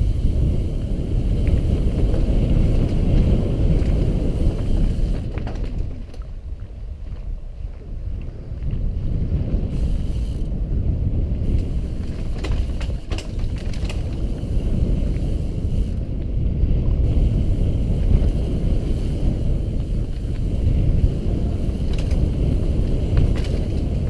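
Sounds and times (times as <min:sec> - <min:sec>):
bike rattles and clicks: 0:00.0 - 0:24.0
bike tyres rumbling on dirt: 0:00.0 - 0:24.0
wind buffeting microphone: 0:00.0 - 0:24.0.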